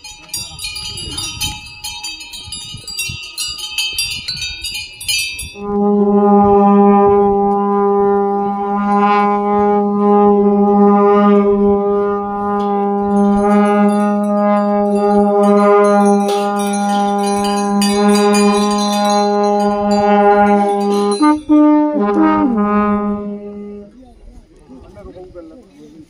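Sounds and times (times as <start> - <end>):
metal bells jingling: 0.0 - 5.6, 12.5 - 22.1
long horn holding low note: 5.6 - 24.1.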